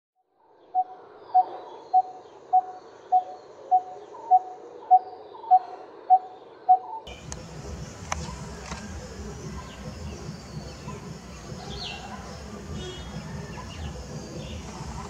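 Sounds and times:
steady background noise: 0.4s - 15.0s
bird calling metallic tuk: 7.1s - 15.0s.

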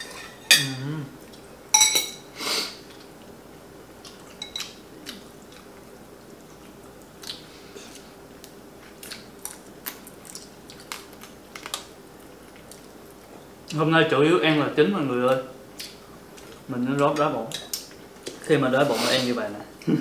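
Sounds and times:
faint steady hum: 0.0s - 20.0s
quiet chewing and mouth sounds: 4.0s - 13.8s, 15.3s - 18.5s.

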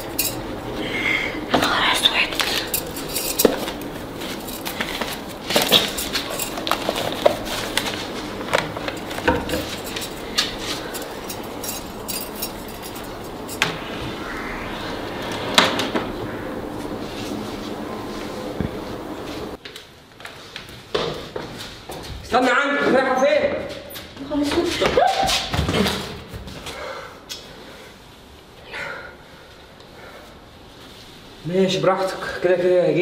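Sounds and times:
metal bangles clinking: 0.0s - 0.5s, 2.4s - 7.6s, 8.9s - 13.7s
clothes rustling: 1.7s - 13.6s.

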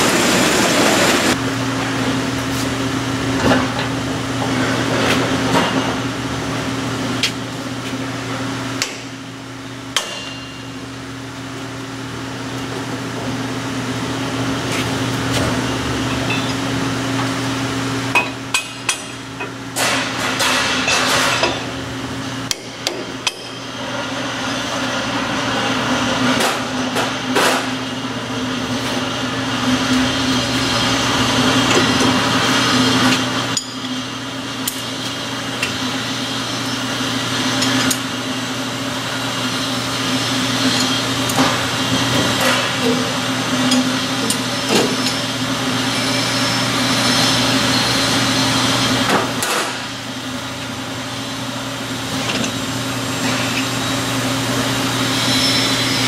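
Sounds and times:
machinery hum: 0.0s - 56.0s.

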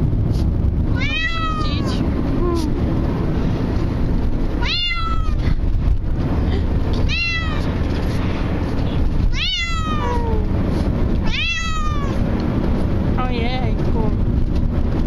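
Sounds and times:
low car rumble: 0.0s - 15.0s
cat meowing in distress: 1.0s - 2.8s, 4.6s - 5.4s, 7.0s - 7.8s, 9.2s - 10.5s, 11.2s - 12.2s.

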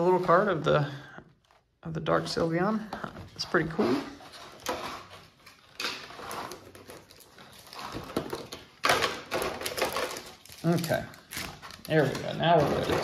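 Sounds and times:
cardboard and foil wrappers crinkling: 3.5s - 13.0s.

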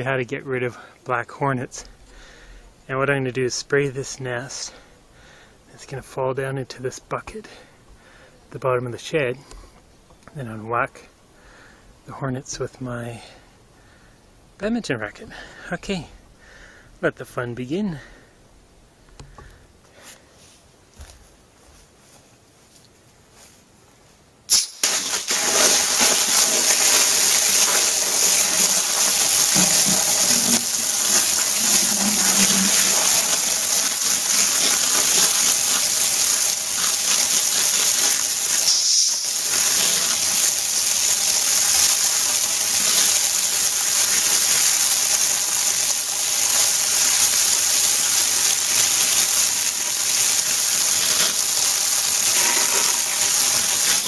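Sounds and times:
high-pressure water jet splattering: 24.5s - 54.0s.

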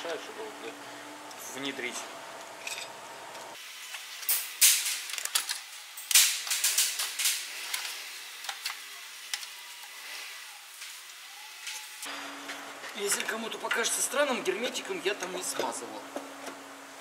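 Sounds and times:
metal parts clinking and knocking: 4.2s - 9.5s.

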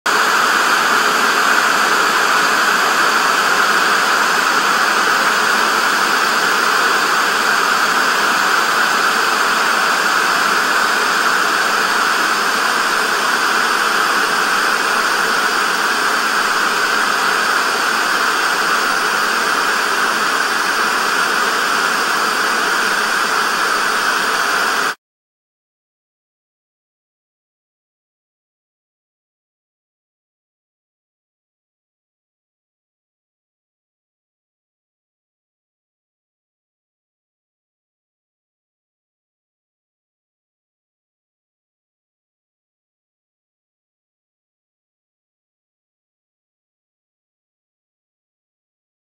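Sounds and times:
tv static hiss: 0.1s - 25.0s.

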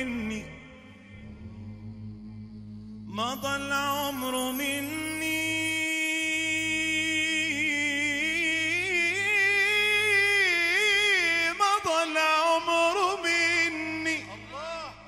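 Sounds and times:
man singing devotional chant: 0.0s - 1.2s, 3.1s - 15.0s.

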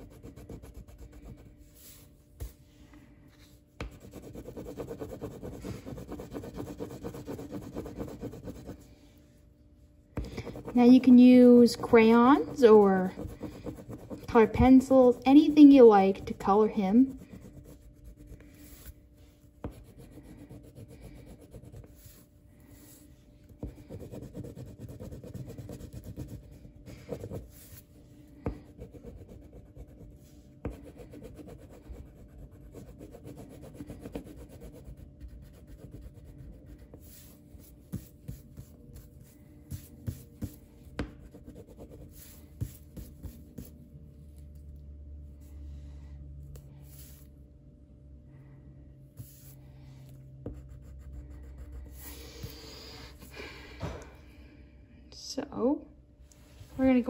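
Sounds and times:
coloring strokes rubbing on paper: 0.0s - 2.7s, 3.4s - 9.2s, 10.2s - 43.8s, 46.8s - 47.3s, 49.2s - 49.6s.

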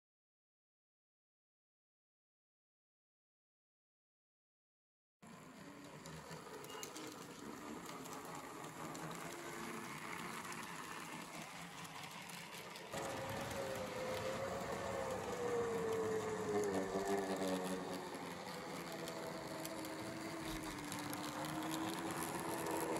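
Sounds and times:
model train running on track: 5.2s - 22.9s.

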